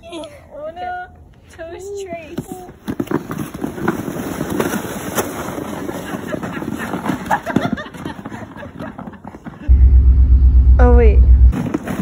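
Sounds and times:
plastic sleds scraping over snow: 2.2s - 9.7s, 11.6s - 12.0s.

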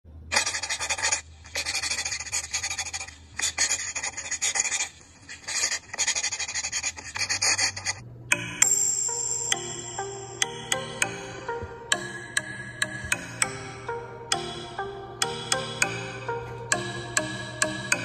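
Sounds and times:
pencil scratching on paper: 0.3s - 8.0s.

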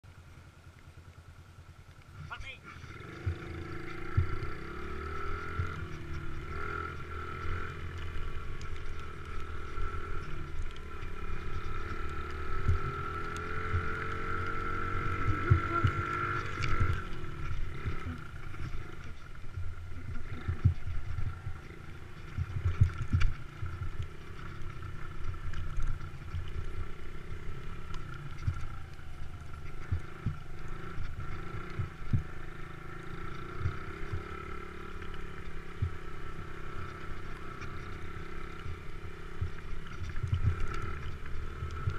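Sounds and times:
motocross bike engine revving: 2.1s - 41.9s.

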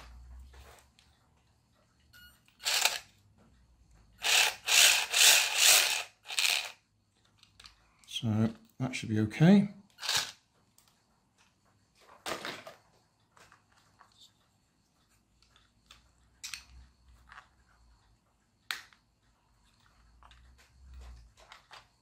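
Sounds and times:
plastic parts clicking: 4.2s - 7.8s, 15.4s - 17.5s.

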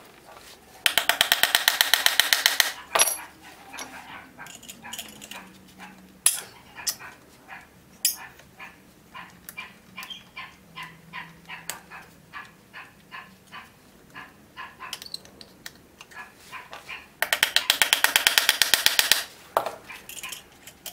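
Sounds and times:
metal tool clinks: 2.8s - 5.4s, 8.0s - 8.3s, 20.0s - 20.9s
dog barking: 2.8s - 15.0s, 16.2s - 17.1s, 19.8s - 20.5s.

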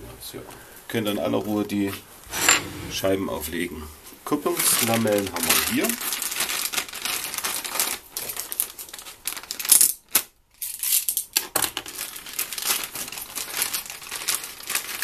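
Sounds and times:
plastic packaging crinkling: 4.6s - 10.3s, 11.7s - 15.0s.

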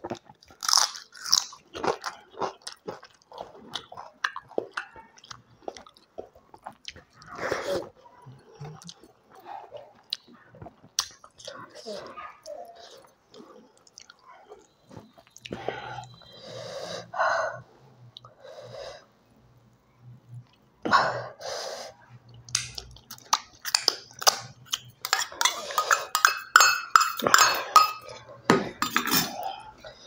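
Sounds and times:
soft eating sounds: 0.0s - 30.0s
spoon clinking against steel bowl: 23.7s - 29.4s.

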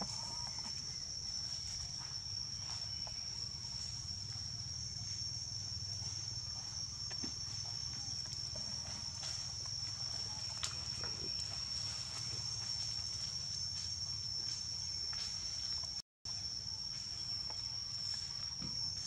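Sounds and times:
high-pitched insect drone: 0.0s - 19.0s
faint ticks and rustles: 8.2s - 16.0s.

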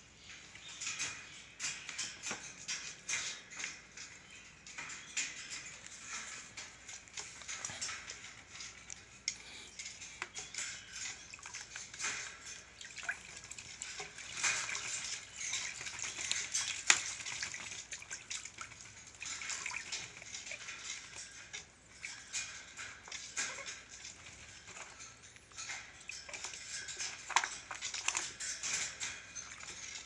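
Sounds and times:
bird splashing in water basin: 10.5s - 30.0s.

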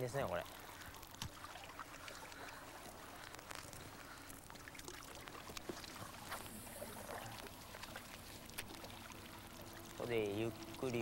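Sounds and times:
water lapping against stone: 0.0s - 11.0s
faint clicks: 2.0s - 6.5s.

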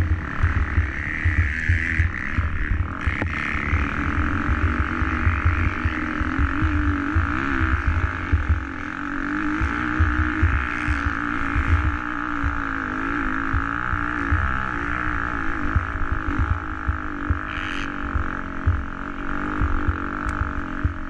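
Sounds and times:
low thumps: 0.0s - 8.8s, 9.6s - 12.7s, 15.6s - 18.9s
motocross bike engine running: 0.0s - 21.0s.

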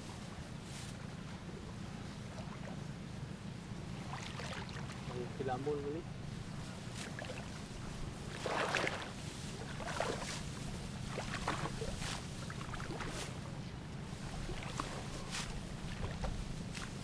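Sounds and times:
steady low hum: 0.0s - 17.0s
sickles swishing through rice stalks: 0.6s - 1.0s, 6.8s - 13.4s, 14.1s - 17.0s
water and mud sloshing: 1.0s - 17.0s.

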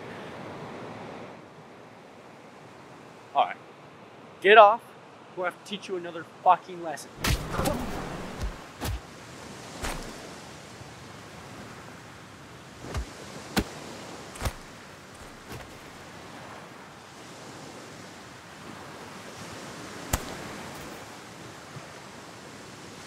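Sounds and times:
ocean surf: 0.0s - 23.0s
sharp thumps: 7.2s - 9.0s, 9.8s - 10.2s, 14.4s - 15.8s.

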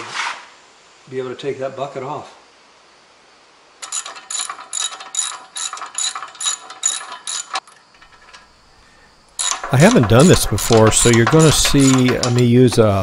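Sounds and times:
ratchet wrench clicking: 3.8s - 8.5s, 9.4s - 13.0s.

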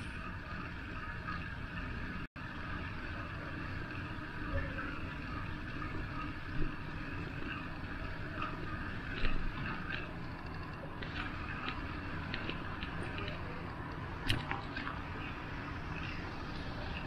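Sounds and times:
bicycle rolling on street: 0.0s - 17.0s.

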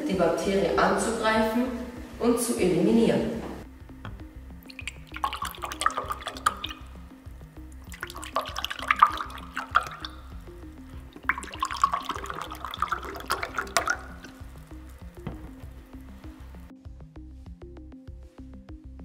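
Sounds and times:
background music: 0.0s - 19.0s
liquid pouring into glass: 4.1s - 16.7s.

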